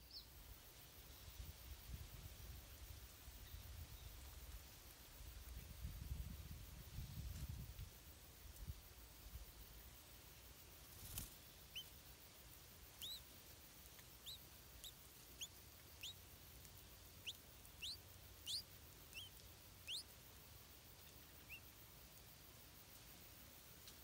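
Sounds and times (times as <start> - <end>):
nestling begging squeaks: 13.0 - 13.2, 17.8 - 19.3.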